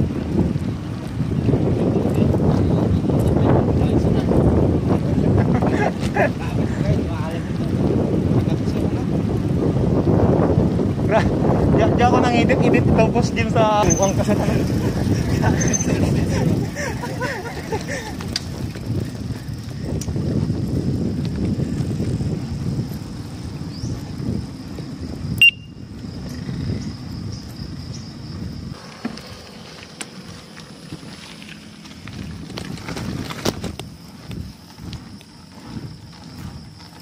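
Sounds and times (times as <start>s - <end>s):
road rumble: 0.0s - 37.0s
wind on microphone: 0.0s - 37.0s.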